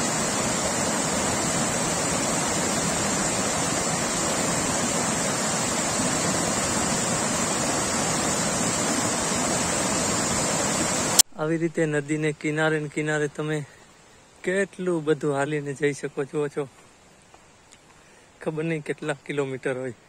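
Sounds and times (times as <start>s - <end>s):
river water rushing over rocks: 0.0s - 11.2s.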